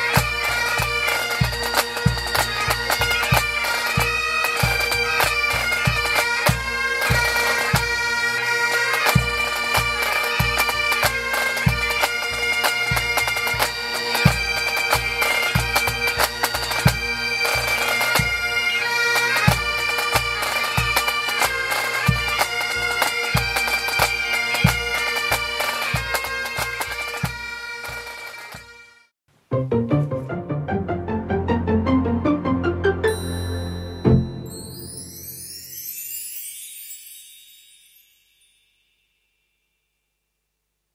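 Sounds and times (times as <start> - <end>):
drums beating: 0.0 - 8.0
bagpipes droning: 0.0 - 29.0.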